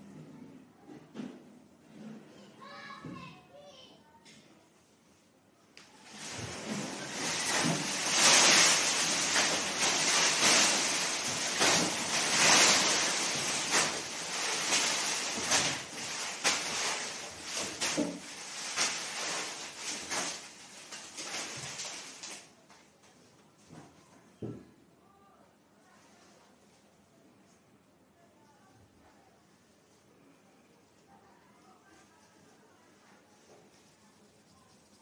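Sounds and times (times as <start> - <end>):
paper banknotes showering down: 6.0 - 22.5.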